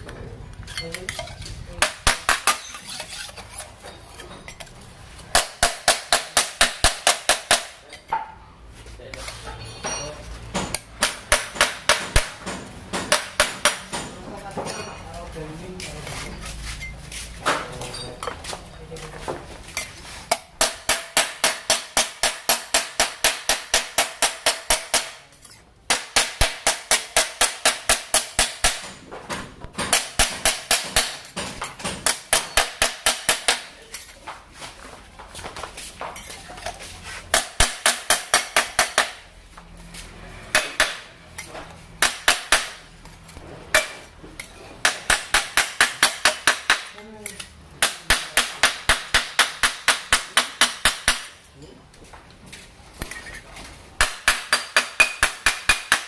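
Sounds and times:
hammer striking metal scraper: 0.8 - 4.7, 5.3 - 7.9, 9.8 - 14.1, 19.8 - 29.0, 29.7 - 33.7, 37.3 - 39.3, 40.4 - 42.9, 43.7 - 46.9, 47.8 - 51.4, 54.0 - 56.0.

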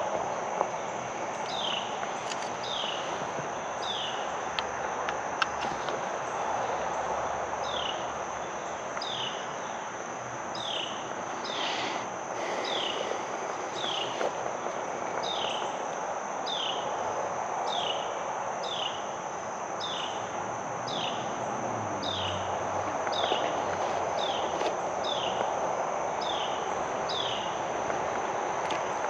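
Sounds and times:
high-pitched insect drone: 10.6 - 16.9.

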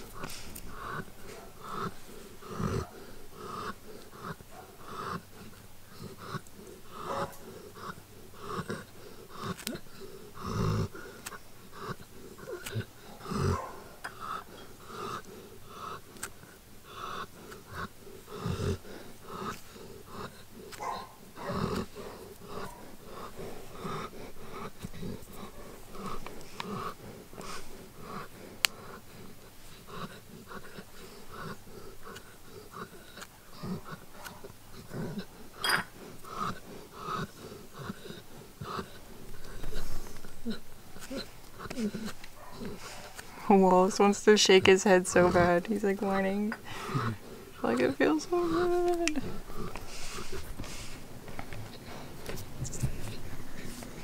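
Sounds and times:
dog breathing noisily: 0.0 - 54.0
dog snorting: 0.0 - 54.0.

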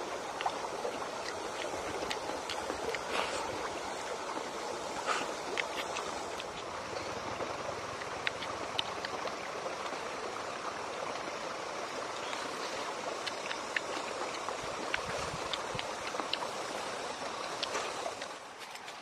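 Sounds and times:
short sharp eating clicks: 5.0 - 6.7, 13.2 - 16.8.

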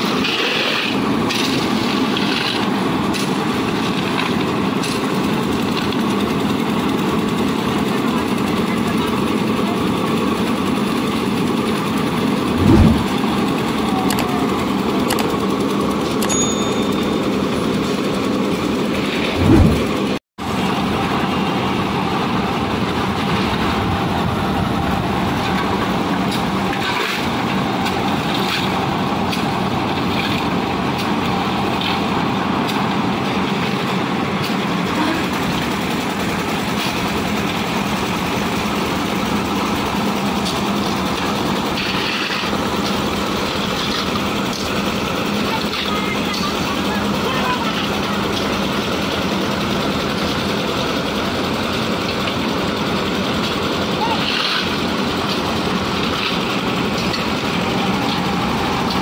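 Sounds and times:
concrete mixer running: 0.0 - 59.0
brief low thumps: 12.5 - 13.2, 19.3 - 20.2.

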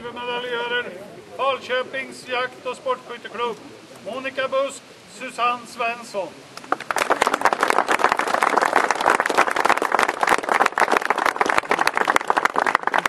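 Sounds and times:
crowd applauding: 6.6 - 13.0.

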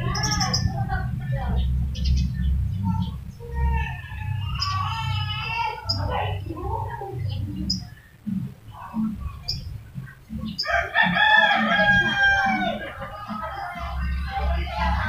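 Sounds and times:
rooster crowing: 3.4 - 6.1, 10.6 - 15.0.

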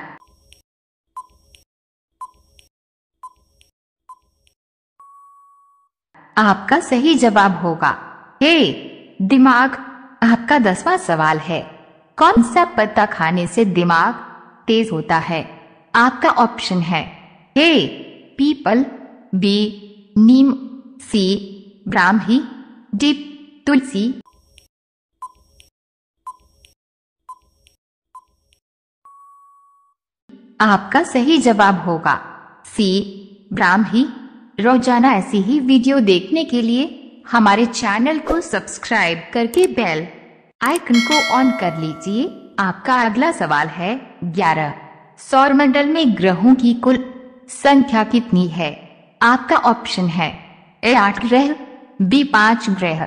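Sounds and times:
timer tick-beeps: 2.2 - 5.2, 40.7 - 42.5
ticking beeps: 40.7 - 42.5
long steady beep: 41.0 - 42.6.

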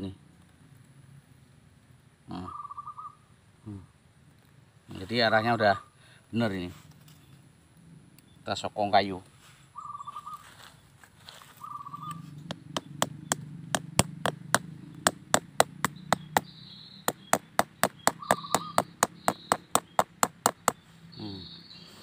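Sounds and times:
bird trill: 2.3 - 3.3, 9.7 - 13.6, 15.6 - 22.0
sharp taps: 12.4 - 20.8.

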